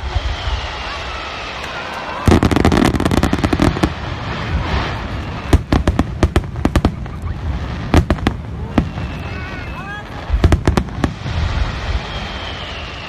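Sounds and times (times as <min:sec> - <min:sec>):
fireworks cracking: 0:00.0 - 0:13.0.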